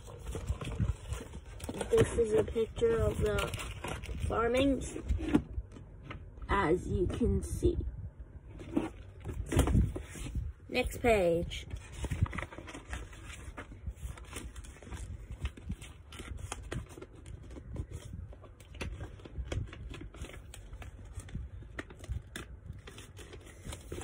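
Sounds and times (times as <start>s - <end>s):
low room rumble: 0.0s - 24.0s.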